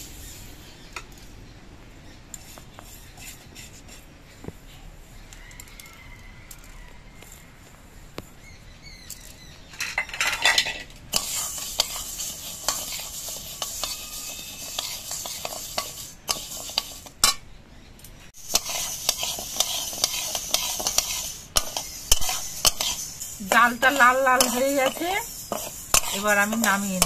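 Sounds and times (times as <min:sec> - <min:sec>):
lentils scraping across pan: 0:09.8 - 0:17.4, 0:18.4 - 0:27.0.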